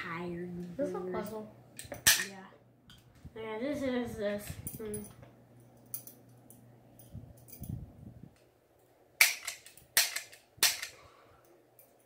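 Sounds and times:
cap gun cracks: 9.2 - 11.0.

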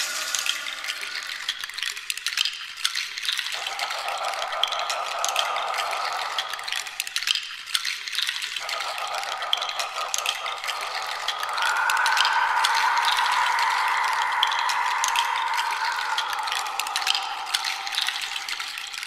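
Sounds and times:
rattle shaken: 0.0 - 19.0
steady rushing sound: 10.8 - 19.0.

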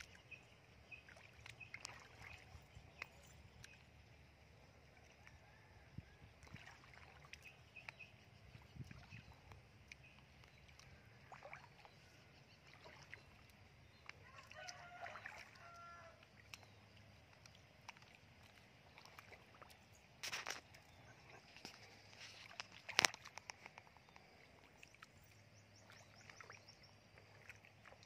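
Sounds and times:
feet splashing in shallow water: 0.0 - 28.0
rooster crowing faintly: 14.2 - 16.2.

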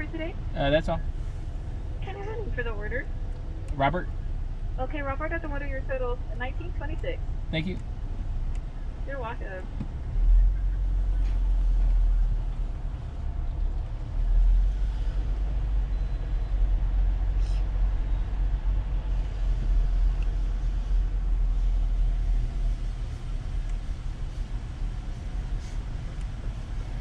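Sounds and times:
car engine and road rumble: 0.0 - 27.0.

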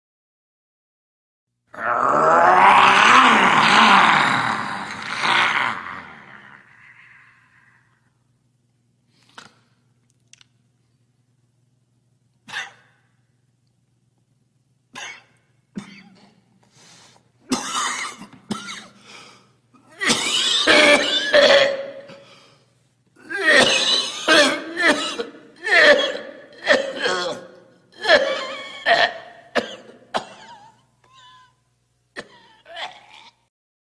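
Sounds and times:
man imitating lion roar: 1.7 - 7.8
man coughing: 12.5 - 13.0, 15.0 - 16.4, 17.5 - 19.0, 20.0 - 22.3, 23.2 - 31.4, 32.1 - 33.3.

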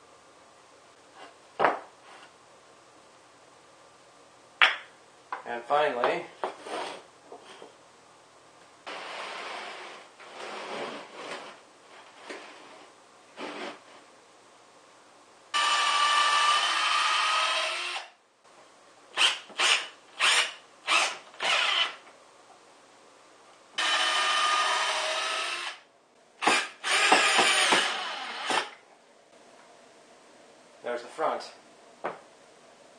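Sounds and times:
cordless drill into wood: 15.6 - 18.1, 19.2 - 22.0, 23.8 - 25.8, 26.4 - 28.8.

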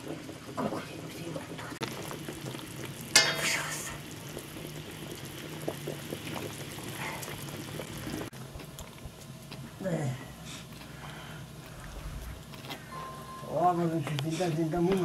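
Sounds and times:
pot bubbling and hissing: 0.0 - 15.0
low hum: 11.0 - 14.1
short loud ringing: 12.9 - 13.8.

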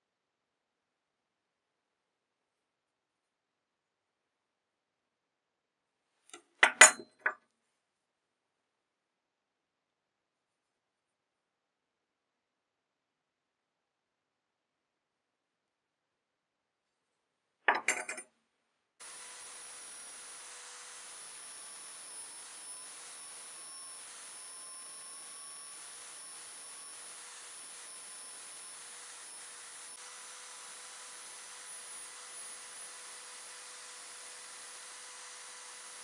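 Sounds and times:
drill whine: 19.0 - 36.0.

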